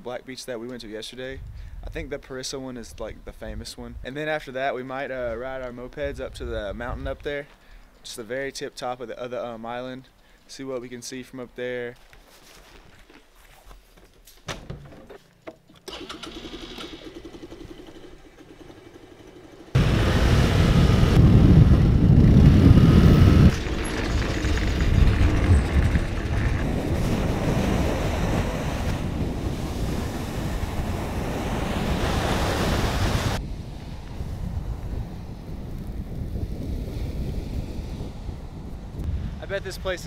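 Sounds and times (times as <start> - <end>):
helmet knocks and clicks: 14.0 - 15.8
moped engine running: 16.3 - 26.7
wind buffeting microphone: 19.8 - 40.0.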